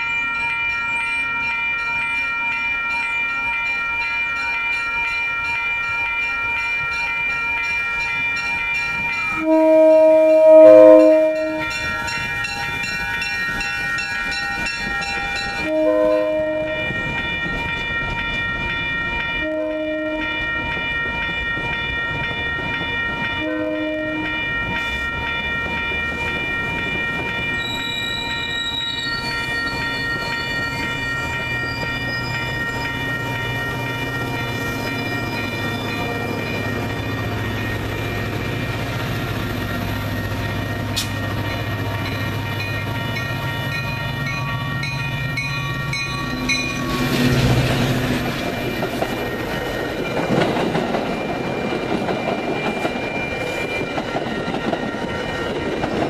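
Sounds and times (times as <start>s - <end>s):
bell ringing: 0.0s - 56.0s
rumble and clatter of train cars: 0.0s - 56.0s
train horn blasts: 9.3s - 11.8s, 15.6s - 16.9s, 19.4s - 20.4s, 23.4s - 24.4s.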